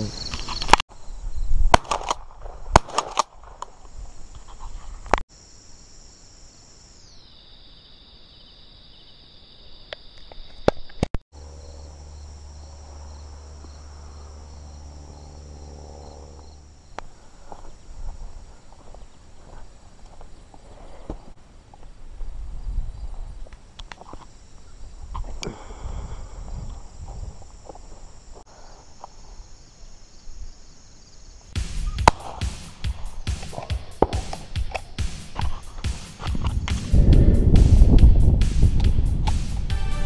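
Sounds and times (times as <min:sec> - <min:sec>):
crickets and insects buzzing: 0:00.0 - 0:40.0
low steady hum: 0:11.4 - 0:17.0
loud sharp bangs: 0:31.6 - 0:36.9.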